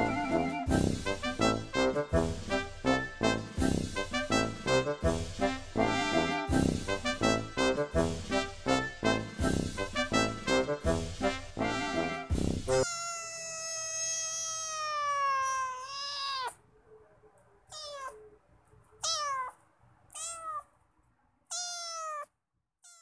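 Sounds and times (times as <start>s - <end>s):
kitten meowing: 12.8s - 16.6s, 17.7s - 18.2s, 19.0s - 20.7s, 21.5s - 23.0s.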